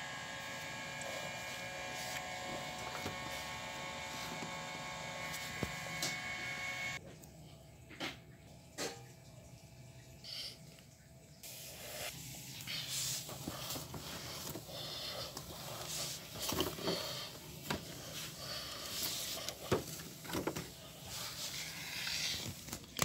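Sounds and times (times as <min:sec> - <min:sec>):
cardboard rustling and scraping: 0:00.7 - 0:06.4, 0:12.9 - 0:23.0.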